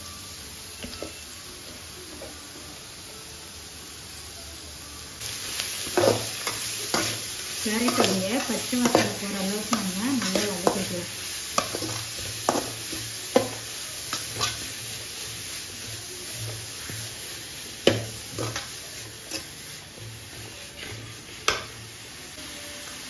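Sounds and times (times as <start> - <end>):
vegetables sizzling in a pan: 0.0 - 23.0
metal spatula scraping a pan: 18.3 - 19.7, 20.3 - 21.6.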